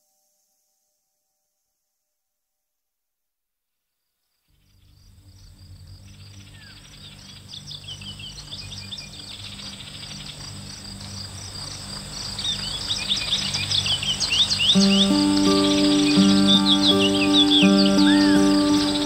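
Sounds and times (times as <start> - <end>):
insects trilling: 4.8 - 19.0
birds chirping: 12.4 - 19.0.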